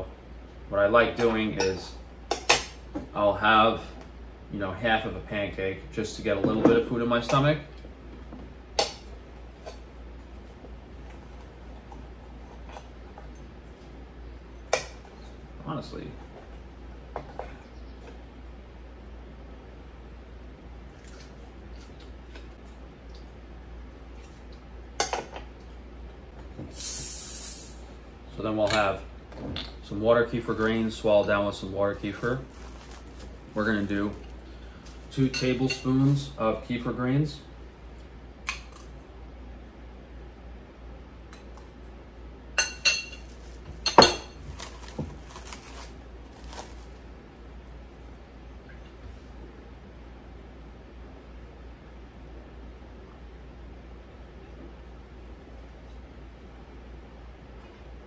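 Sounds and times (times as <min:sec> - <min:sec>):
short loud hiss: 0:26.7 - 0:27.9.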